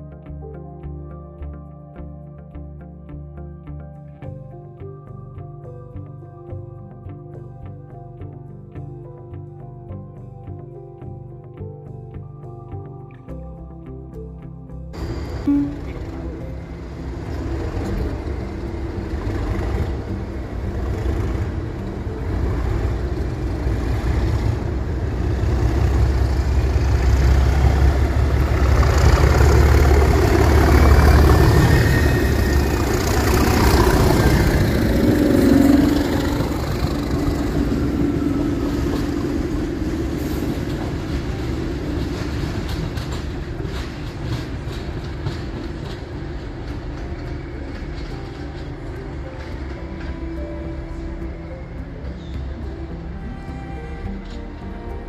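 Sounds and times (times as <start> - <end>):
diesel locomotives passing: 15.0 - 55.0.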